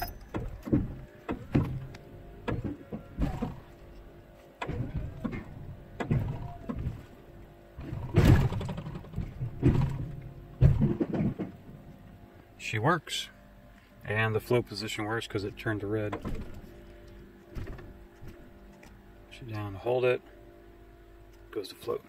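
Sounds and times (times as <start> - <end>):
plow blade clunks and knocks: 0.0 - 3.9, 4.6 - 7.2, 7.8 - 11.8.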